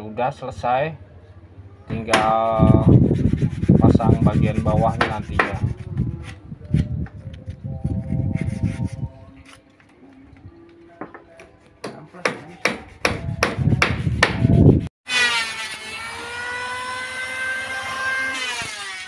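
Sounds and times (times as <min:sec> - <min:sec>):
hammer blows on wood: 0:01.9 - 0:07.2, 0:11.0 - 0:14.9
electric planer whining: 0:15.1 - 0:19.0.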